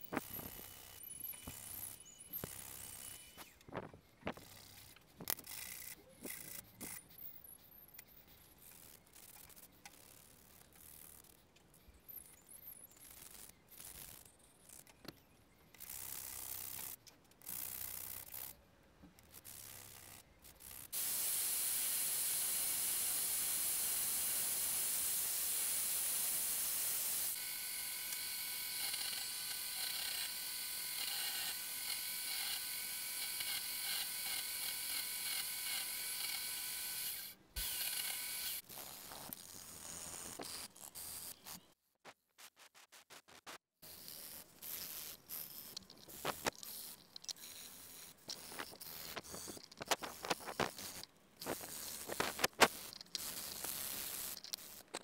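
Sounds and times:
electric drill with wire wheel: 0.0s - 3.6s, 4.3s - 7.1s, 19.3s - 41.5s, 43.8s - 55.0s
metal parts rubbed on sandpaper: 0.0s - 15.0s, 15.8s - 18.6s, 19.2s - 21.0s, 28.2s - 36.2s, 36.8s - 41.7s, 42.4s - 55.0s.

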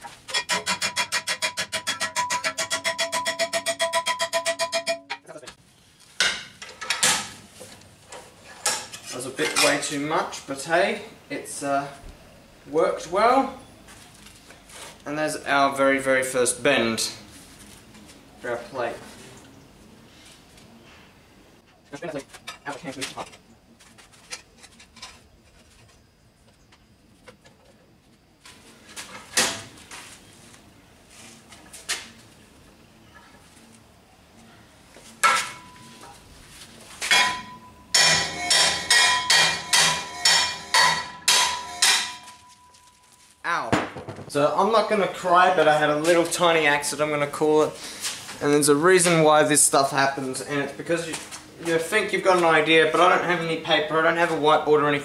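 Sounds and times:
hammer on steel plate: 0.3s - 5.3s, 37.1s - 42.4s
noisy knocks: 43.8s - 44.4s.

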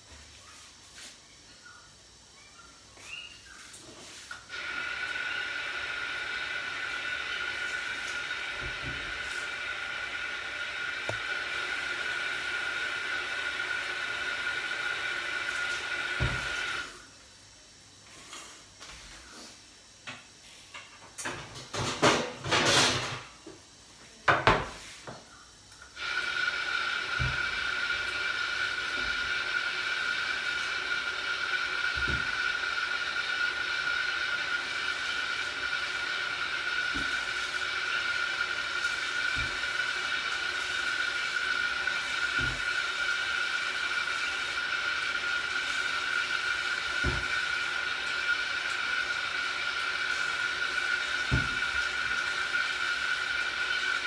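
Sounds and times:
tap water running into sink: 4.5s - 16.9s, 26.0s - 54.0s.

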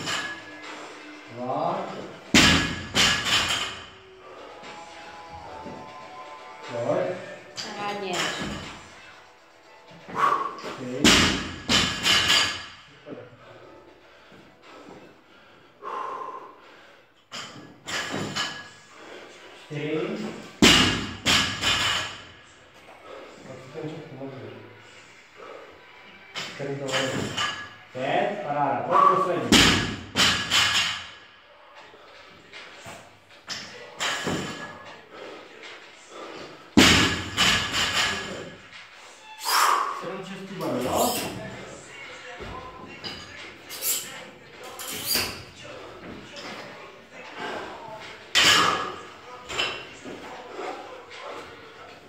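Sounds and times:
person breathing heavily: 13.3s - 17.3s
barbell knocks and clanks: 20.6s - 22.2s.

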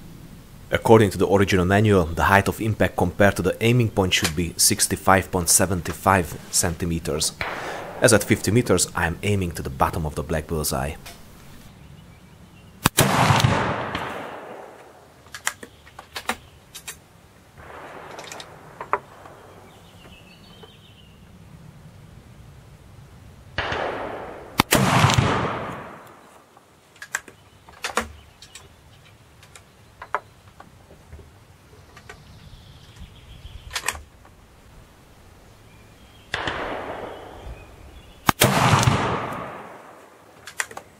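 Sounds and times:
rifle shot: 7.4s - 8.5s, 12.8s - 15.1s, 17.6s - 19.7s, 23.6s - 26.2s, 36.3s - 40.2s
gunshot echo: 7.4s - 8.8s, 12.8s - 15.0s, 17.6s - 19.7s, 23.6s - 26.2s, 36.3s - 40.1s
rifle metallic clicks: 12.8s - 17.0s, 17.7s - 19.4s, 27.0s - 28.7s, 38.3s - 40.9s.

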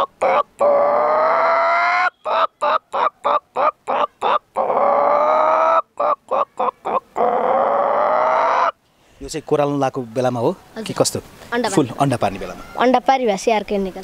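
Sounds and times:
boy imitating hen cackle: 0.0s - 8.8s, 12.5s - 13.0s.

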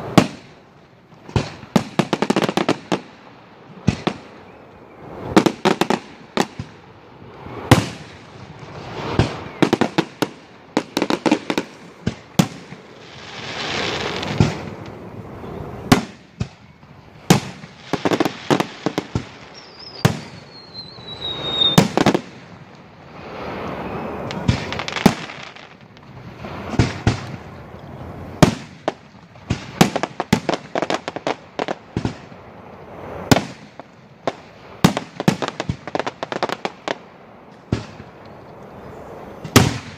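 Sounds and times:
falling firework whistle: 3.9s - 25.7s.

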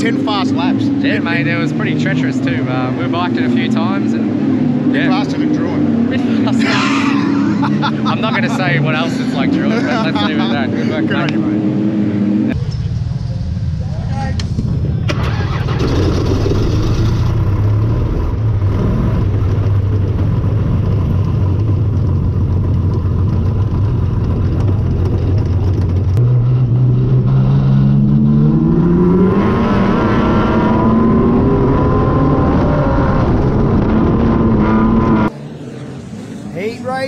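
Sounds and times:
race car engine revving: 0.0s - 12.6s, 14.5s - 36.8s.

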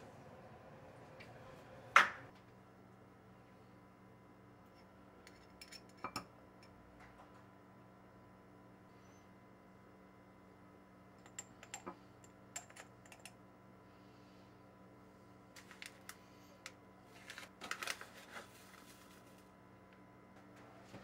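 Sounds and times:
spice packet rustling: 15.6s - 16.2s, 17.1s - 19.5s.

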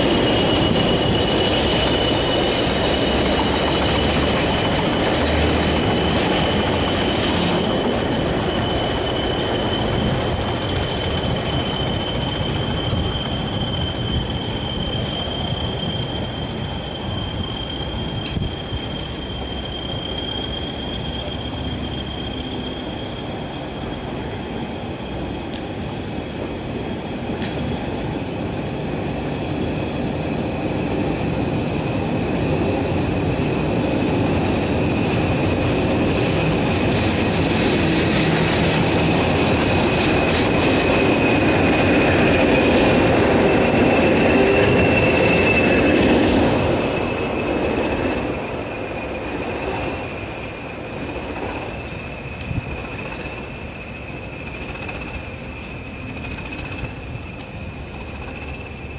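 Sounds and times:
diesel locomotives passing: 0.0s - 58.9s
rumble of rails: 0.0s - 58.9s
train wheels squealing: 0.0s - 58.9s.

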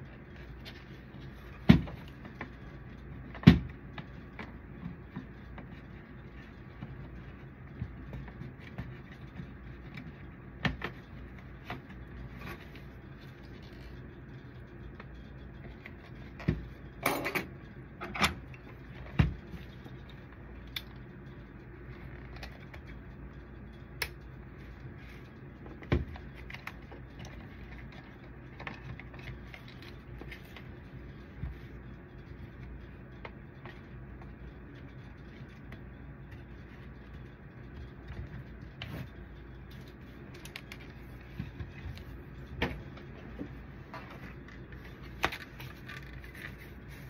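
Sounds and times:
steady low hum: 0.0s - 47.0s
plastic parts clicking and rattling: 44.0s - 46.7s.

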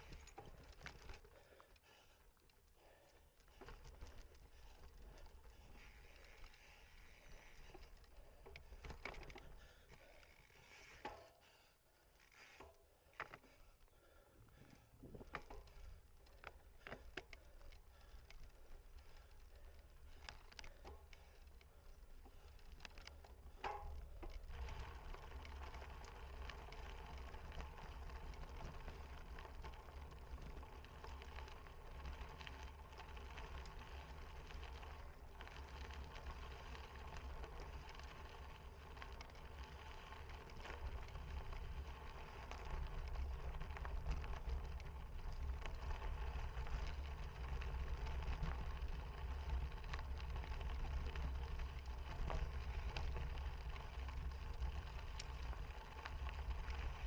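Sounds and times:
bicycle rumbling and rattling: 0.0s - 57.0s.

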